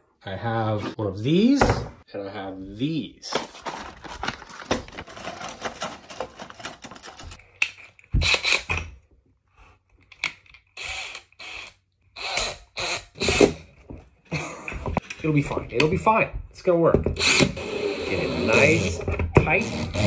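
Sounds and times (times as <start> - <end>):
drill motor bursts: 17.2 - 18.8.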